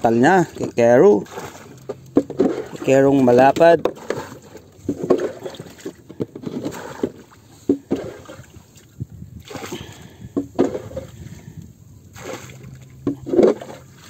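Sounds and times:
gear knocking in wooden boat: 1.3 - 8.4.

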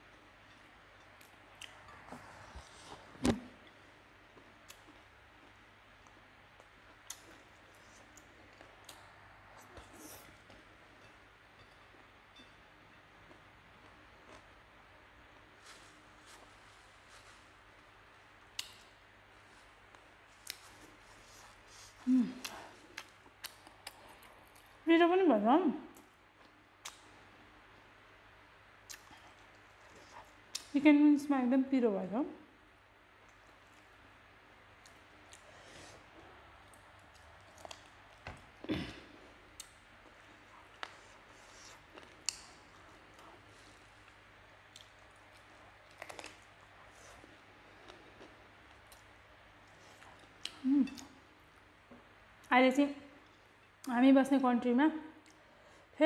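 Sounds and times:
person chewing: 34.8 - 51.2
person eating with mouth sounds: 49.8 - 51.3.

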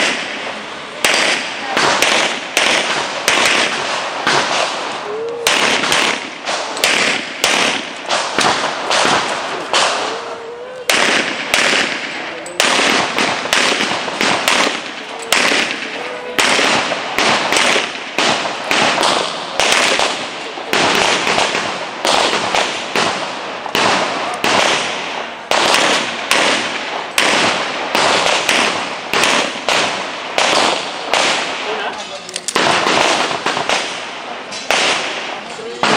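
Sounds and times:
handgun shots echoing: 1.0 - 4.9, 5.5 - 10.1, 10.8 - 24.9, 32.3 - 35.9.

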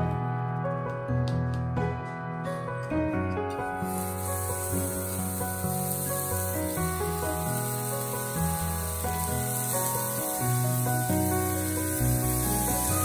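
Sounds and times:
background music: 0.0 - 13.0
beef sizzling on grill: 3.8 - 13.0.

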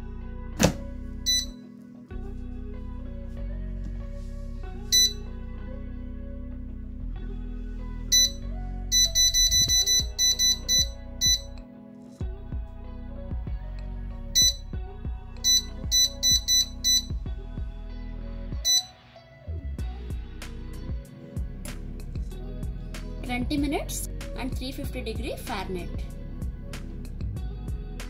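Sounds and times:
background music: 0.0 - 28.0
short high beeps: 1.3 - 1.6, 4.9 - 5.2, 8.2 - 11.6, 14.4 - 14.6, 15.5 - 17.2, 18.7 - 18.9.

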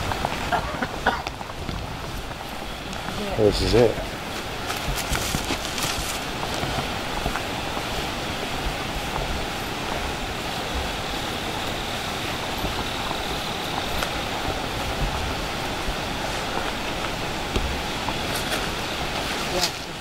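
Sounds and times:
steady rushing outdoor noise: 0.0 - 20.0
footsteps on leaf litter: 0.7 - 8.6, 12.8 - 20.0.

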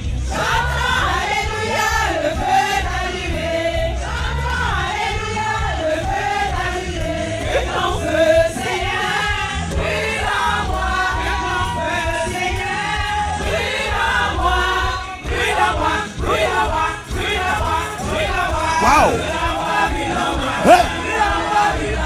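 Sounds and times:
choir singing gospel song: 0.0 - 22.0
band backing: 17.0 - 22.0.

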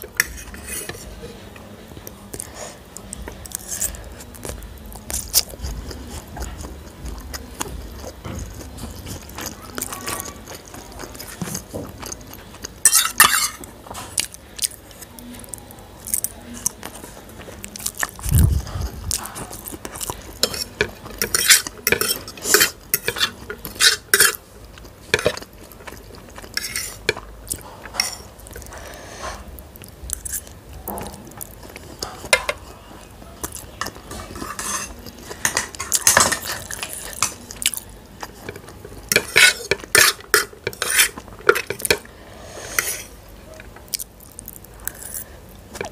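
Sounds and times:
clinks and scrapes on ceramic plates: 0.1 - 1.1, 12.8 - 14.1, 20.4 - 24.4, 26.5 - 27.2, 27.9 - 29.4, 31.8 - 32.7, 33.8 - 37.4, 38.3 - 43.2.

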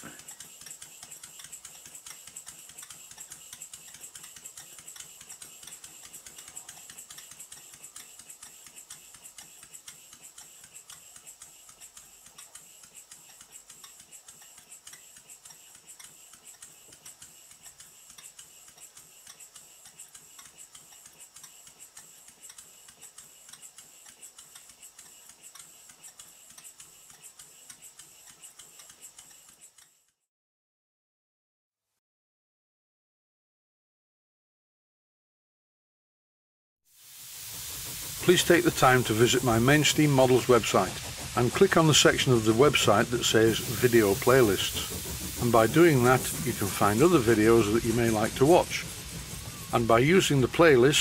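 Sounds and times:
steam engine exhaust puffs: 0.0 - 30.1, 36.9 - 51.0
clicking motion work: 0.0 - 30.2, 37.4 - 51.0
steady air hiss: 36.9 - 51.0.

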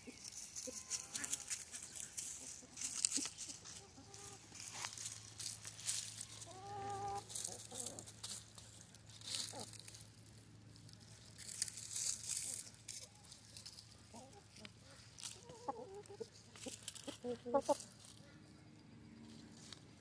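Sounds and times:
chickens scratching dry leaves: 0.0 - 18.5, 19.1 - 20.0
chicken call: 6.3 - 7.8.

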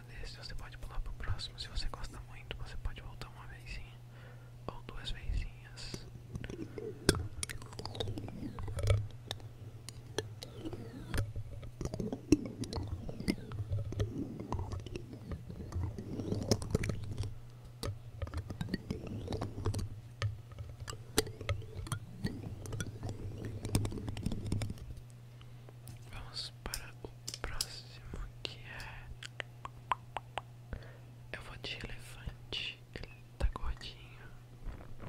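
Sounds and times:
low rumbling handling noise: 5.4 - 28.4.

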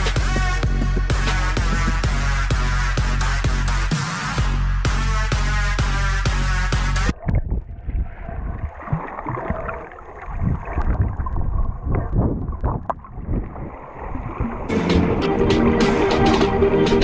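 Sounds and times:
electronic dance music: 0.0 - 7.1
muffled underwater sloshing: 7.1 - 14.7.

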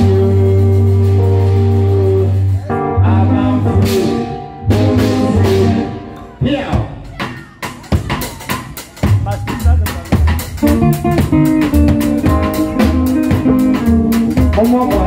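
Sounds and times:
electric guitar: 0.0 - 6.4, 10.4 - 15.0
pulsing bass: 0.0 - 7.1, 8.0 - 15.0
drum kit: 0.0 - 15.0
keyboard chords: 0.0 - 15.0
live band playing: 0.0 - 15.0.

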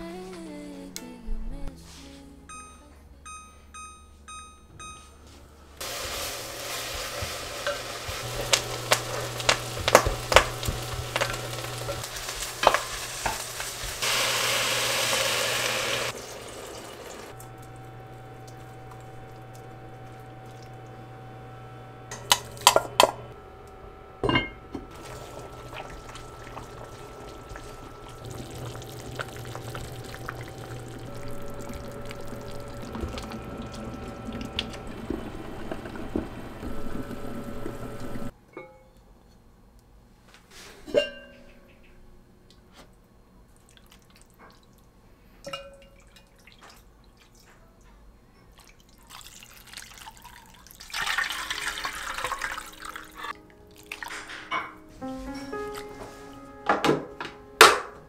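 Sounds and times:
meat sizzling in a pot: 5.8 - 21.2, 24.9 - 38.3, 49.1 - 54.1
steady low hum: 16.2 - 38.3.

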